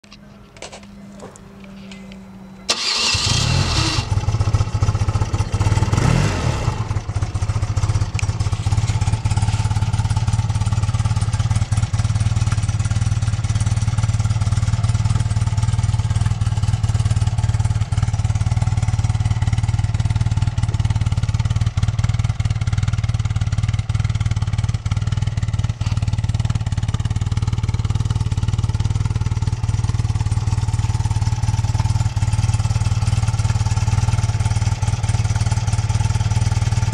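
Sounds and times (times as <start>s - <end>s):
motorcycle engine idling: 0.5s - 36.9s
electric starter cranking: 2.7s - 4.2s.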